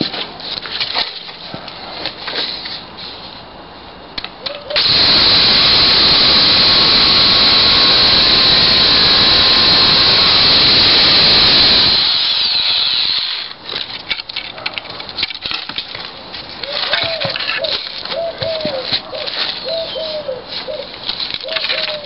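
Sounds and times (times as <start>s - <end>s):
electric chainsaw cutting branch: 4.7s - 13.6s.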